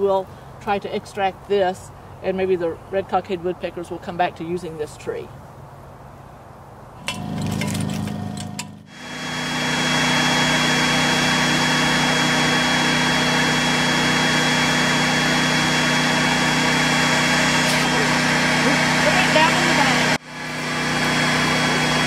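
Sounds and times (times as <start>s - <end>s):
vacuum cleaner running: 7.0s - 22.0s.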